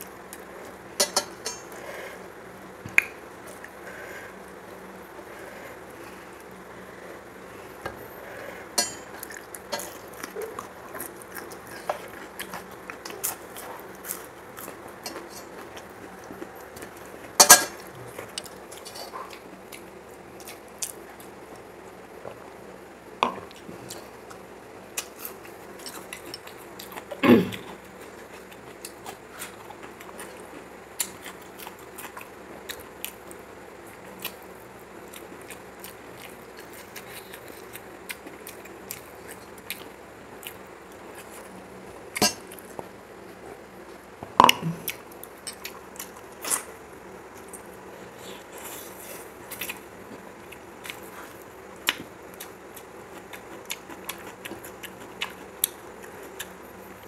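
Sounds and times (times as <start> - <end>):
chewing and mouth sounds: 9.1 - 21.7, 34.0 - 43.0, 44.7 - 57.0.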